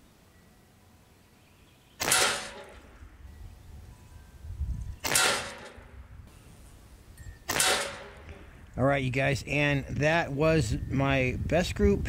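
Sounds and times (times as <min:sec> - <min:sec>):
air rifle shots: 0:02.0 - 0:03.0, 0:05.0 - 0:06.0, 0:07.4 - 0:08.5.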